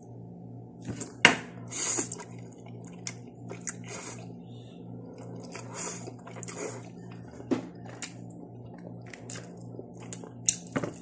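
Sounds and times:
person slurping noodles: 3.6s - 4.3s, 5.3s - 7.0s.

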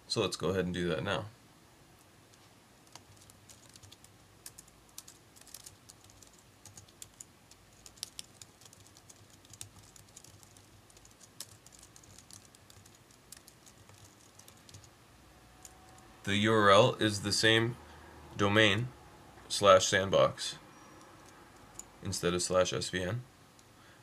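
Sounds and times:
faint keyboard typing: 2.0s - 15.0s, 20.8s - 22.0s.

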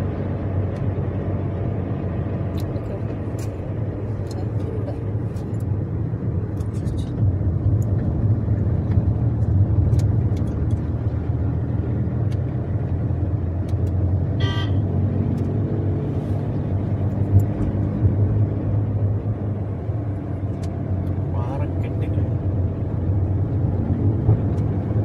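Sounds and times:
car engine and road rumble: 0.0s - 25.0s
car horn toot: 14.4s - 14.9s.

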